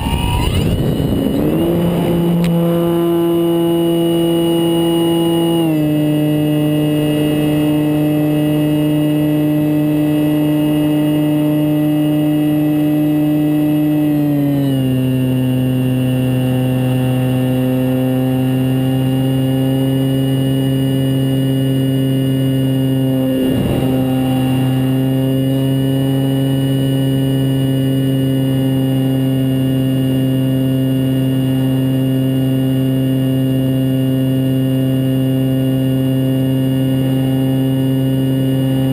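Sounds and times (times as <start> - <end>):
electric motor and propeller droning: 0.0 - 38.9.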